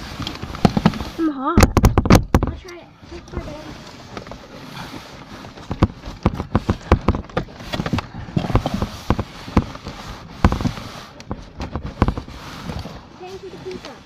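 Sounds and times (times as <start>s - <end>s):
hard knocks and thumps: 0.2s - 2.6s, 5.5s - 12.9s.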